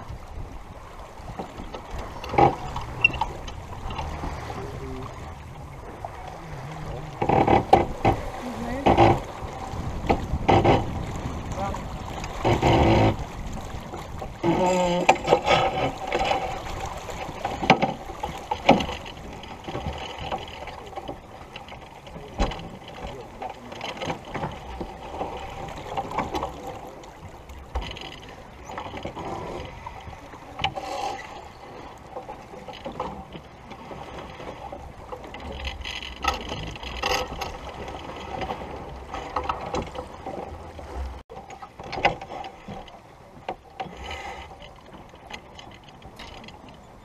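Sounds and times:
wind rumbling on microphone: 0.0 - 41.2
water along hull: 0.0 - 47.0
winch clicks and knocks: 1.4 - 4.4, 17.2 - 26.6, 35.1 - 40.5, 41.3 - 46.8.

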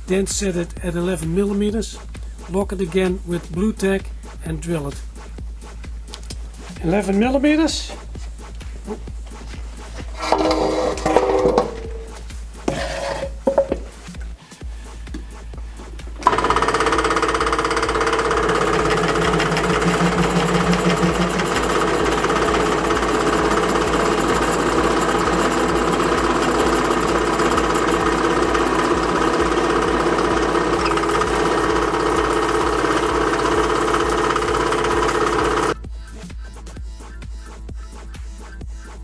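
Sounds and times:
drill press drilling metal: 10.2 - 12.1, 16.2 - 35.8.

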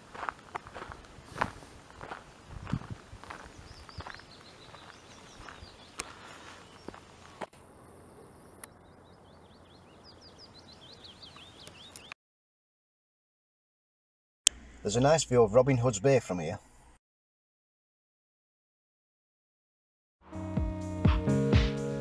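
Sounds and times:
footsteps crunching on gravel: 0.0 - 7.5
faint outdoor hiss: 0.0 - 12.1, 14.5 - 17.0
songbirds chirping: 0.0 - 12.2.

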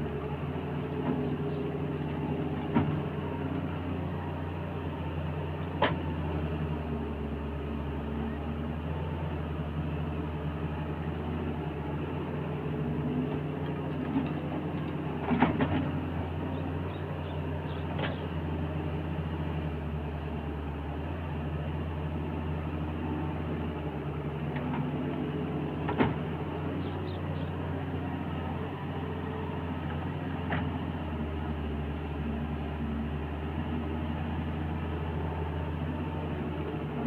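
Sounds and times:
excavator diesel engine running: 0.0 - 37.0.

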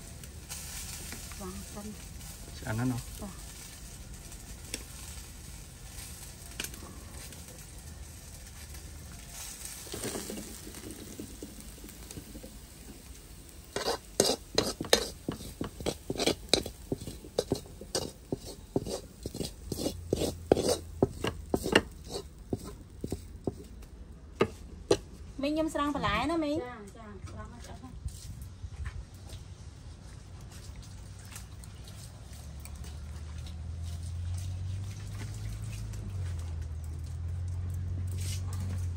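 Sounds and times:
wok simmering with soft hiss: 0.0 - 38.9
metal spoon scraping pan: 13.6 - 23.7.

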